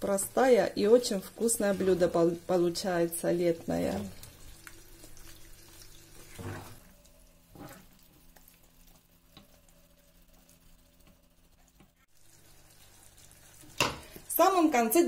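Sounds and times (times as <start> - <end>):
food simmering in a pan: 0.0 - 15.0.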